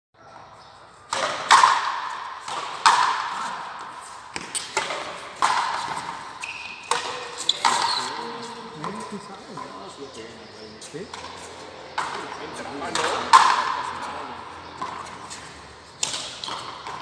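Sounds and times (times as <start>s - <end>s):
rubber ball struck by rackets: 1.1s - 9.0s, 11.9s - 17.0s.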